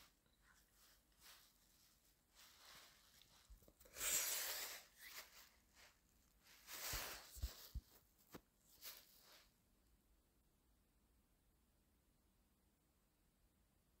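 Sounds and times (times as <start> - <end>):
phone rubbing against fabric: 3.8 - 8.0.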